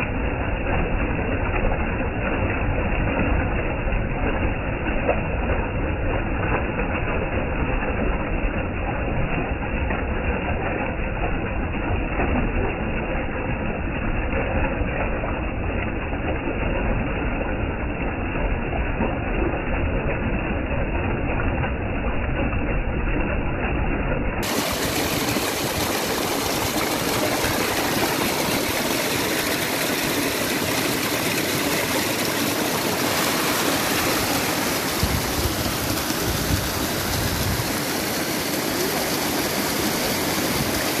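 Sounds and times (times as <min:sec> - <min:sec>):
low rumble: 0:16.8 - 0:38.5
stream rushing over rocks: 0:24.4 - 0:41.0.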